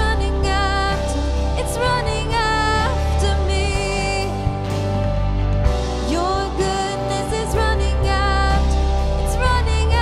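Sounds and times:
person singing: 0.0 - 4.8, 6.0 - 10.0
live band playing slow song: 0.0 - 10.0.

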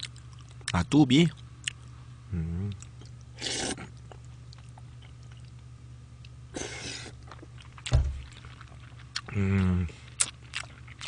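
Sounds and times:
chewing with wet clicks: 0.0 - 1.9, 2.7 - 3.3, 3.9 - 6.4, 7.2 - 9.3, 10.1 - 11.0
steady low hum: 0.0 - 11.0
man slurping noodles: 6.6 - 7.2
sharp thump: 7.9 - 8.2.

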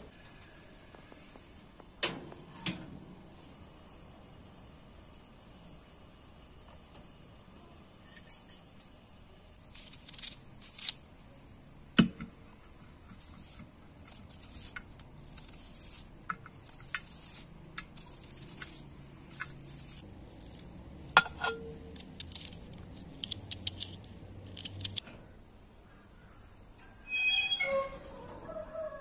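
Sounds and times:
knife cutting onion: 9.6 - 11.0, 12.0 - 25.0.

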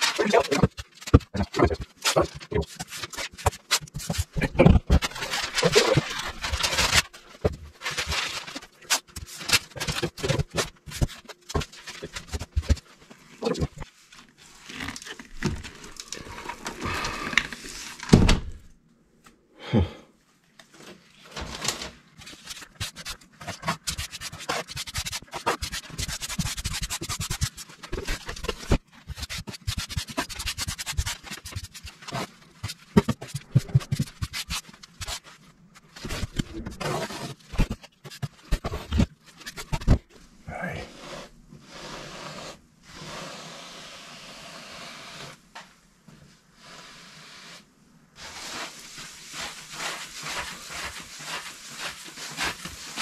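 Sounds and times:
grout float scraping tiles: 48.2 - 53.0.

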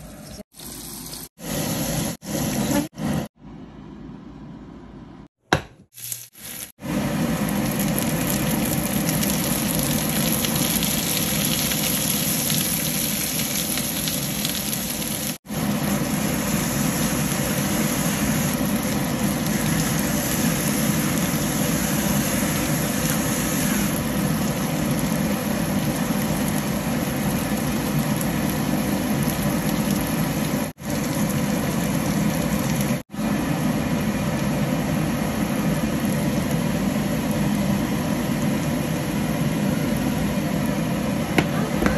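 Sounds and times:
vegetables sizzling in a frying pan: 5.9 - 6.7, 7.3 - 36.5.

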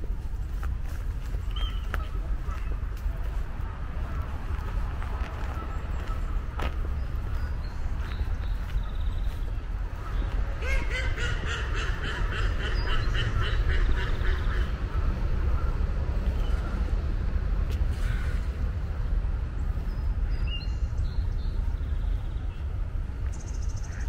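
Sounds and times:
steady low rumble: 0.0 - 24.0
small birds chirping: 1.2 - 3.4, 4.0 - 17.0, 18.1 - 24.0
duck quacking: 10.6 - 14.8.

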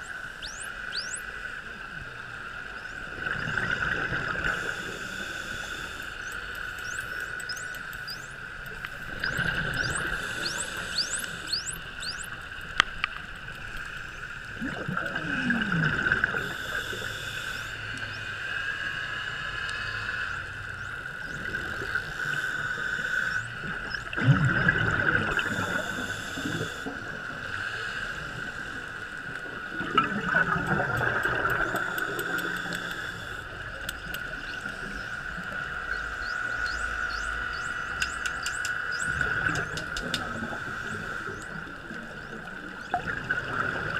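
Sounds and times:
dolphin whistles: 0.4 - 1.3, 9.2 - 12.3
steady high hum: 3.9 - 29.8
faint dolphin clicks: 4.5 - 14.4, 16.3 - 21.2, 27.6 - 43.0
regulator bubbles rumbling: 14.6 - 16.6, 23.6 - 25.8, 29.7 - 32.6.

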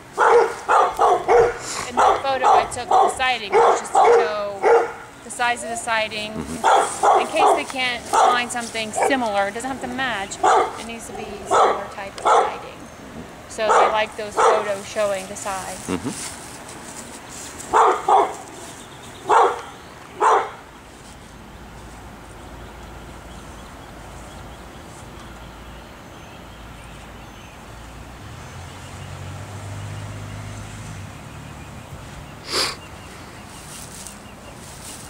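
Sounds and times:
dog barking: 0.2 - 5.1, 6.6 - 9.2, 10.4 - 10.8, 11.4 - 12.6, 13.7 - 14.7, 17.7 - 18.5, 19.2 - 20.6.

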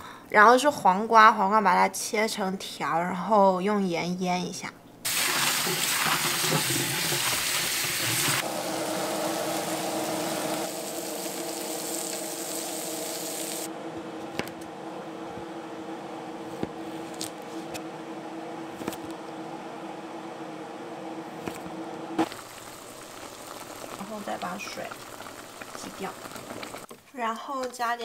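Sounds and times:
tap water running into a sink: 5.1 - 8.4
faint hum: 8.4 - 26.8.

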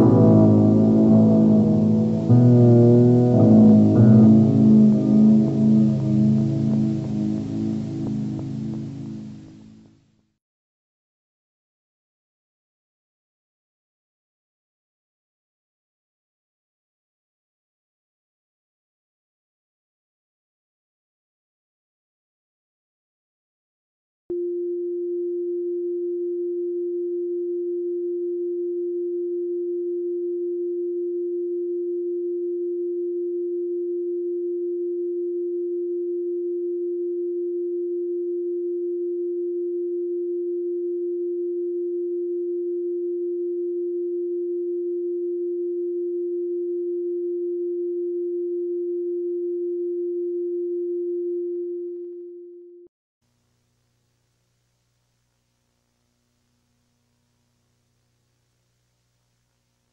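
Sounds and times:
steady sine-wave test tone: 0.0 - 10.1, 24.3 - 59.9.

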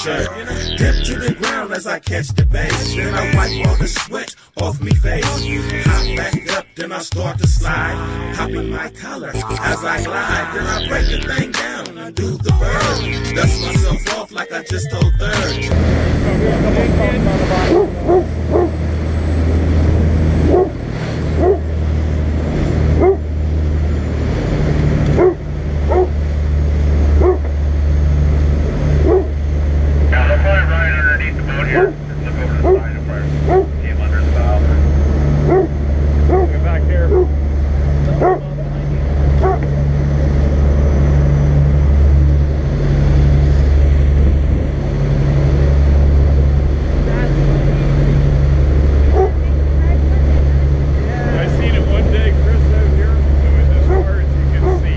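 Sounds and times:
boat engine droning: 0.0 - 1.9, 7.4 - 14.3, 14.9 - 54.9
water rushing along hull: 15.8 - 54.9
rushing wake: 38.9 - 54.9.

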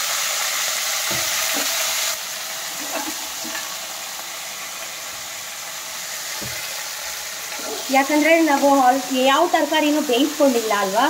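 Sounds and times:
peas sizzling in hot oil: 0.0 - 11.0
steel spoon scraping: 7.4 - 8.2.

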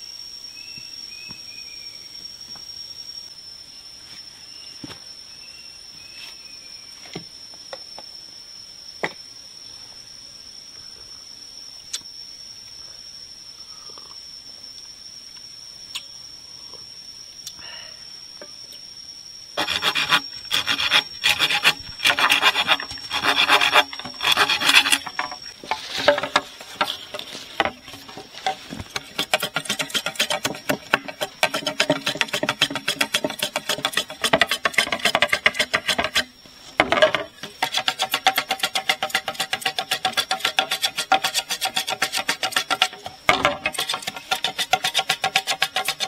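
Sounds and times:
blade scraping bamboo: 19.6 - 46.0.

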